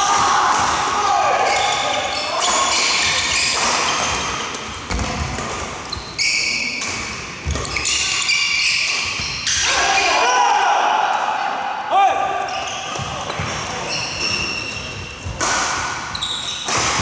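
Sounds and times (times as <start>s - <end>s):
rackets hitting shuttlecock: 0.1s - 6.0s, 6.7s - 9.6s, 12.9s - 17.0s
shoes squeaking on wooden floor: 13.8s - 15.3s, 16.1s - 16.6s.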